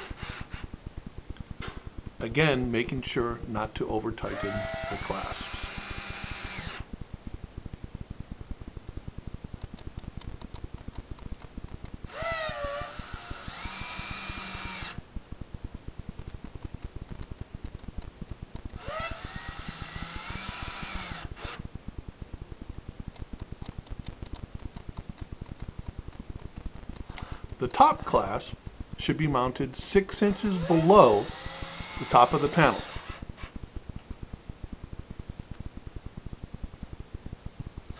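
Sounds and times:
cordless drill whining: 0:04.2 - 0:06.9, 0:12.1 - 0:15.0, 0:18.8 - 0:21.6, 0:30.3 - 0:33.5
fast even ticking: 0:16.1 - 0:18.8, 0:23.1 - 0:28.4.

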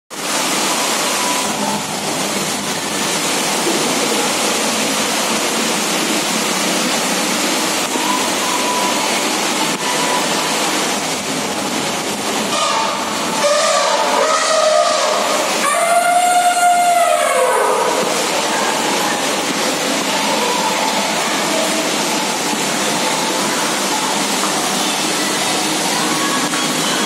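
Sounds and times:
water pouring and splashing: 0:00.1 - 0:27.0.

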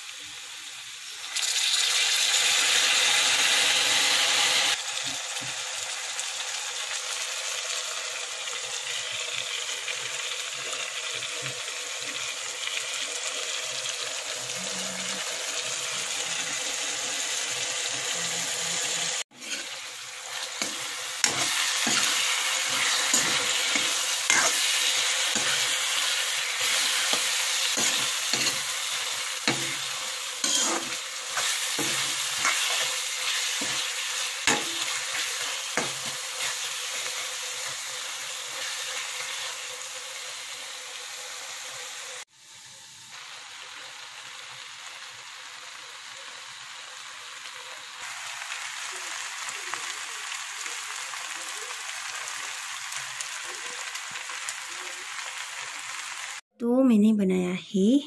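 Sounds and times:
vegetables sizzling in a wok: 0:00.0 - 0:56.5
spatula scraping a pan: 0:18.8 - 0:37.8.

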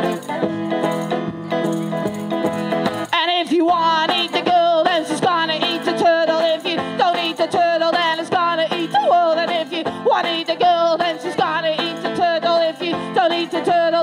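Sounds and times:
banjo plucking: 0:00.0 - 0:14.0
person yodeling: 0:08.4 - 0:14.0.

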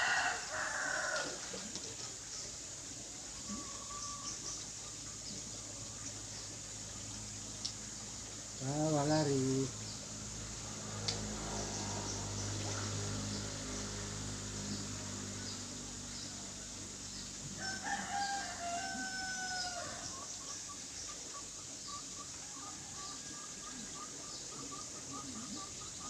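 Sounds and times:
rooster crowing: 0:00.0 - 0:01.5, 0:17.5 - 0:20.2.

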